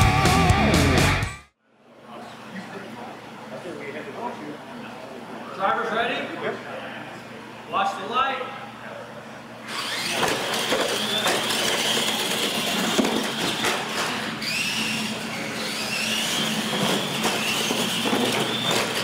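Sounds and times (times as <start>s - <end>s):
toy truck motor whine: 9.6s - 19.0s.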